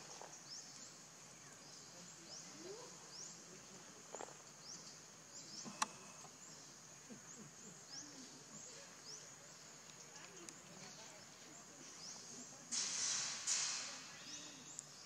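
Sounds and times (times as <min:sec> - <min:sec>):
sharp click: 0:05.7 - 0:06.0.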